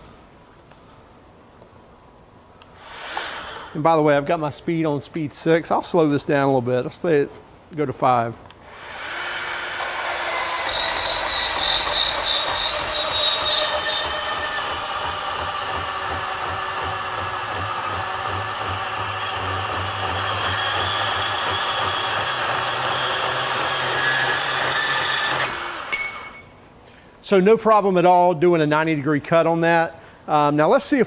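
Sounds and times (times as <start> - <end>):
band saw cutting steel: 8.7 - 26.5.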